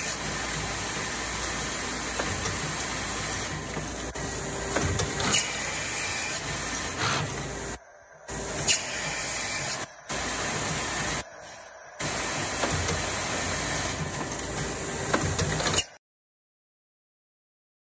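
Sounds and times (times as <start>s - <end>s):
packaging machine hiss and rumble: 0.0s - 16.0s.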